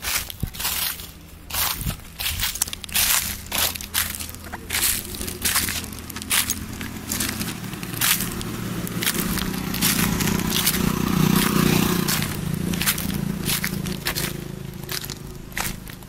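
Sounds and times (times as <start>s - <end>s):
low steady hum: 0.0s - 10.5s
flip-flop footsteps on dry leaves: 0.0s - 16.0s.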